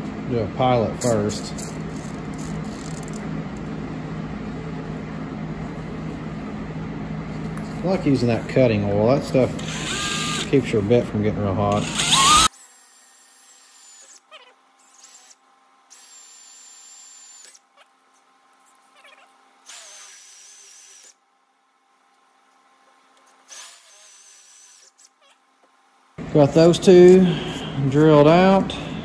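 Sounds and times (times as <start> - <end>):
electric drill boring through steel: 9.6 - 10.5, 11.7 - 14.2, 14.9 - 17.6, 19.7 - 21.2, 23.5 - 25.1.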